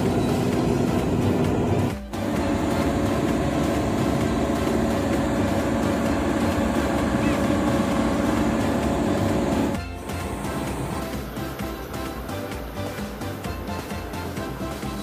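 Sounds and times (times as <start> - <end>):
crane diesel engine idling: 0.0 - 11.6.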